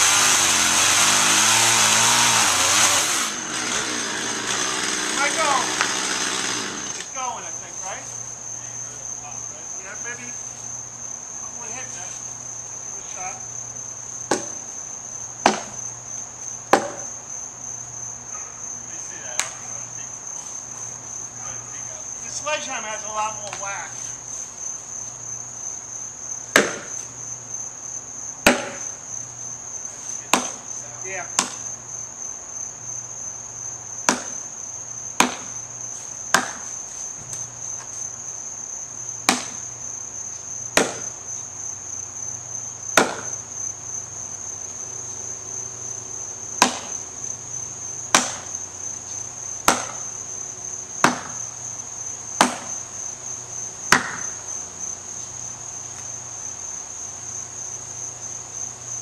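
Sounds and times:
insects droning: 0.0s - 59.0s
axe chopping wood: 14.3s - 14.6s, 15.4s - 15.8s, 16.7s - 17.1s, 26.5s - 27.0s, 28.4s - 28.9s, 30.3s - 30.7s, 31.3s - 31.6s, 34.0s - 34.4s, 35.2s - 35.6s, 36.3s - 36.7s, 39.2s - 39.7s, 40.7s - 41.2s, 42.9s - 43.4s, 46.6s - 47.0s, 48.1s - 48.5s, 49.6s - 50.2s, 51.0s - 51.4s, 52.4s - 52.8s, 53.9s - 54.4s.

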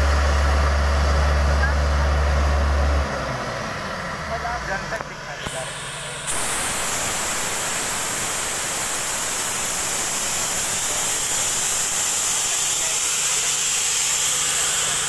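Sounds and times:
low engine hum: 0.0s - 15.0s
compressed air rushing hiss: 5.5s - 15.0s.

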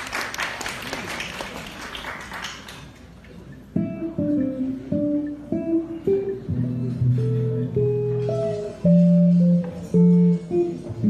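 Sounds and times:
audience applause: 0.0s - 3.0s
electric jazz guitar playing: 3.5s - 11.0s.

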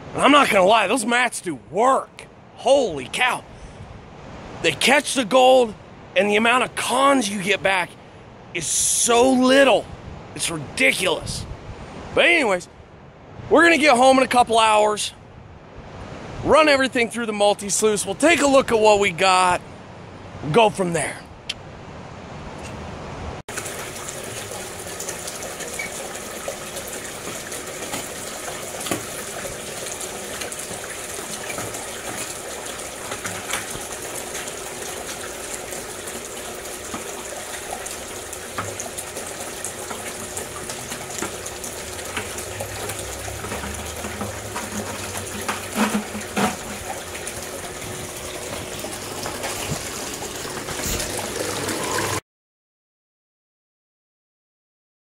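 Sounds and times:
water rushing through sluice: 0.0s - 3.5s, 4.2s - 7.9s, 23.5s - 52.2s.

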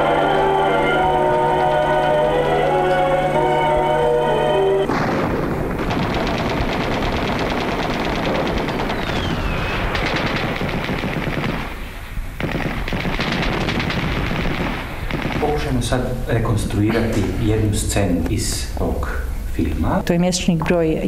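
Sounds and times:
rapid rattling cracks: 4.9s - 16.0s.

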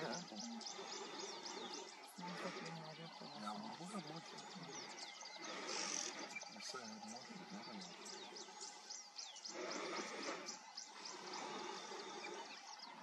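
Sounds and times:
low murmured talk: 0.0s - 8.9s.

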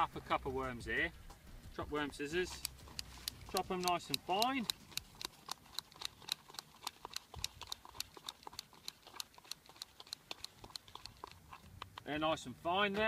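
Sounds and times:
scissors snipping rapidly: 2.4s - 12.1s.

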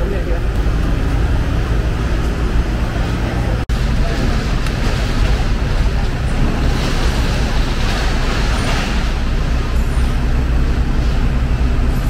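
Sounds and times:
bus engine rumble: 0.0s - 12.0s.

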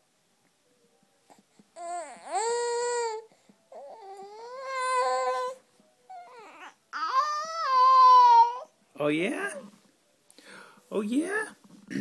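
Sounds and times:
infant high-pitched calls: 3.8s - 8.7s.

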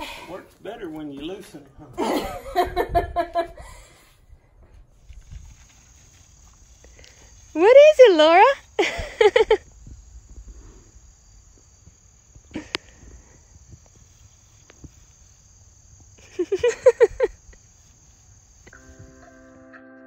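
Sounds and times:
insects chirring: 0.0s - 19.8s
person laughing: 2.0s - 3.9s, 8.8s - 9.6s, 16.2s - 17.6s.

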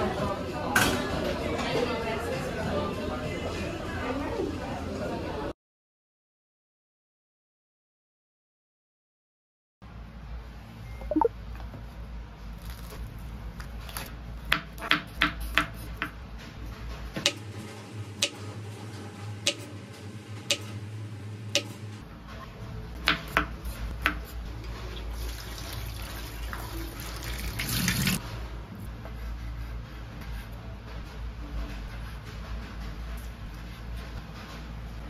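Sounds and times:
knife chopping on cutting board: 14.4s - 16.2s, 19.4s - 19.7s, 21.5s - 21.8s
tap water pouring into sink: 25.0s - 28.2s.

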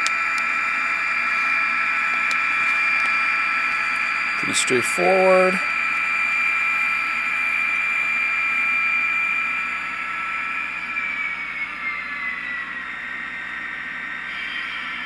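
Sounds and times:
model locomotive engine whine: 0.0s - 15.0s.

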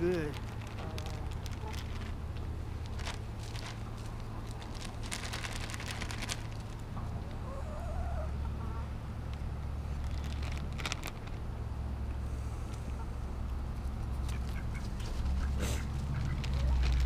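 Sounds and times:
crackling rustles: 0.0s - 7.6s, 9.0s - 17.0s
steady low rumble: 0.0s - 17.0s
hens calling: 14.2s - 17.0s.

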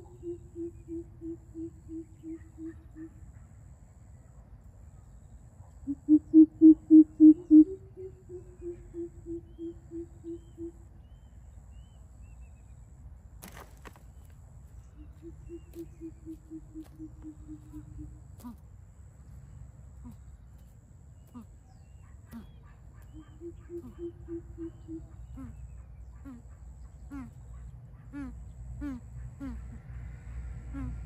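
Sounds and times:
coucals hooting: 14.9s - 18.6s.

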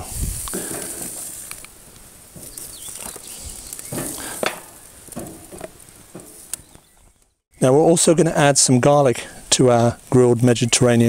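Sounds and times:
faint sizzle: 0.0s - 6.7s.

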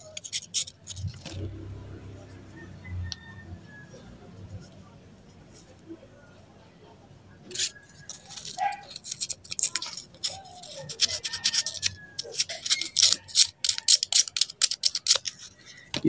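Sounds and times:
sandpaper scratching metal: 0.0s - 1.2s, 7.5s - 15.7s.

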